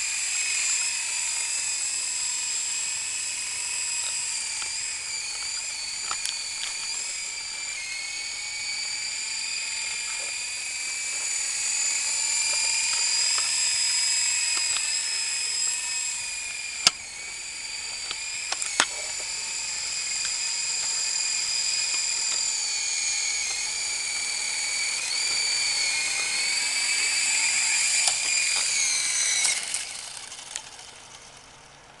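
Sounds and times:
rc helicopter rotor whine: 0.0 - 32.0
sharp clicks: 4.0 - 7.0, 12.4 - 15.0, 16.4 - 19.4, 20.1 - 24.3.

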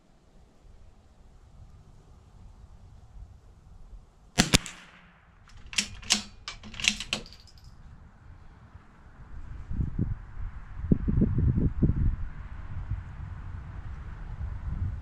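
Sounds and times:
rifle shot: 4.4 - 7.5
rifle bolt clicking: 4.4 - 7.7.

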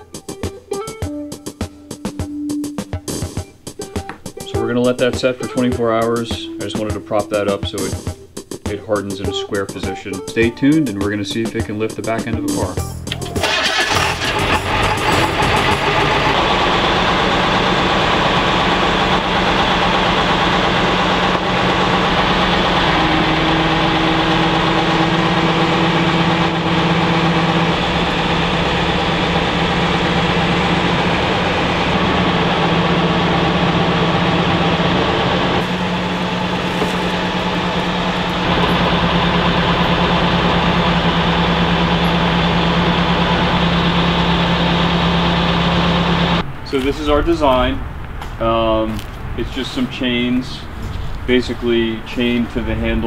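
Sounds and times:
truck engine idling: 12.8 - 53.0.

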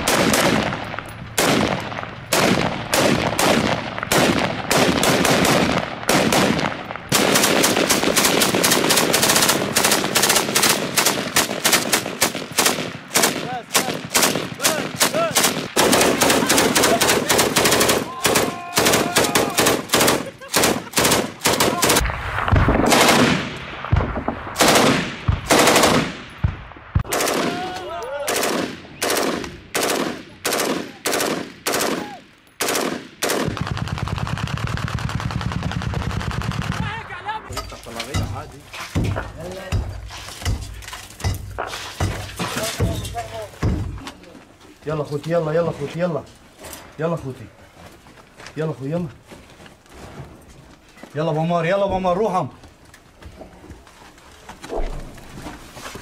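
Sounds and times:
single rifle shots: 0.0 - 27.6, 32.6 - 34.0
machine gun bursts: 7.1 - 22.0.

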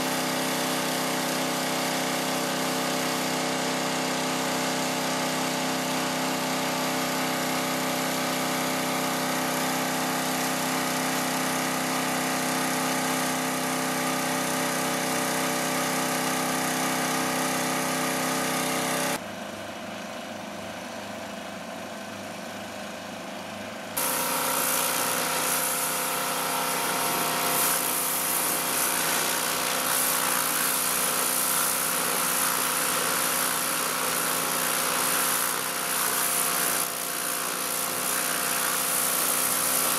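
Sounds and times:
pressure washer engine running: 0.0 - 19.2, 21.1 - 39.9
water jet hissing on car: 24.0 - 39.9.

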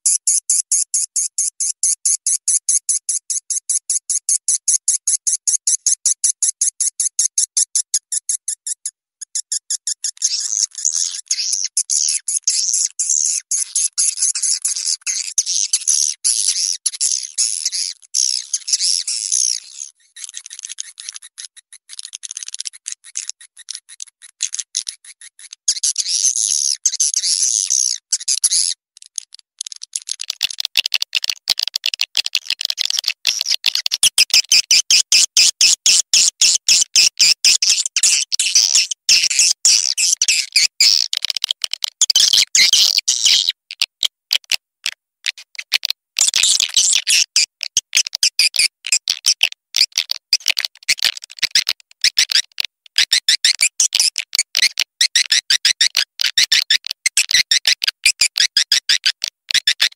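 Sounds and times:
high-pitched bird twittering: 8.2 - 24.0, 34.4 - 41.0
fast sharp clicks: 29.0 - 42.7.

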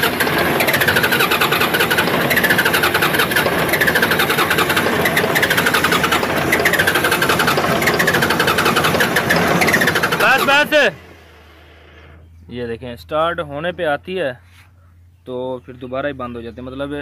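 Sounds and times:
diesel engine cranking on starter: 0.0 - 12.3.

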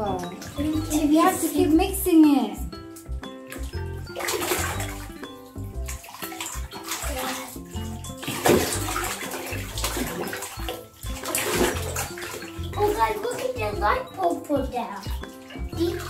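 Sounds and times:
background music: 0.0 - 16.0
hands sloshing in bath jelly: 3.0 - 16.0.

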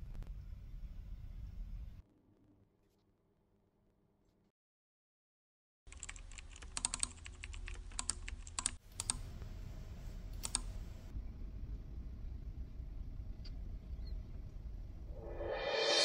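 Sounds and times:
typing on keyboard: 5.9 - 9.2
low steady hum: 7.2 - 16.0.

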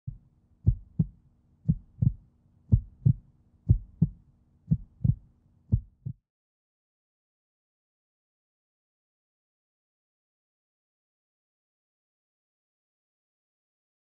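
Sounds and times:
faint steady hum: 0.1 - 6.1
heartbeat thumps: 0.1 - 6.2.

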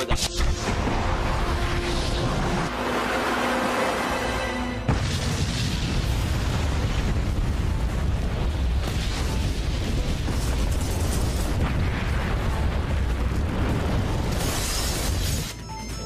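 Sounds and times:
deep volcanic rumble: 4.9 - 15.3.

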